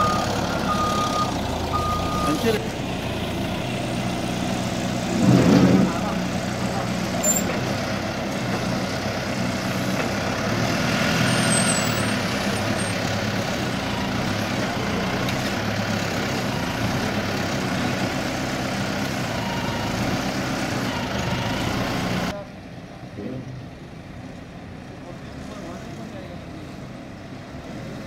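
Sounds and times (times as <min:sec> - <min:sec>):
diesel engine running: 0:00.0 - 0:27.6.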